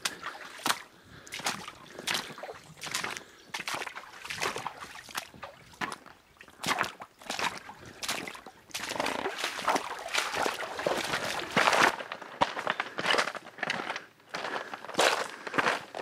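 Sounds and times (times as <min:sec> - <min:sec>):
water sloshing: 0:00.0 - 0:12.1
boots splashing through water: 0:00.0 - 0:13.4.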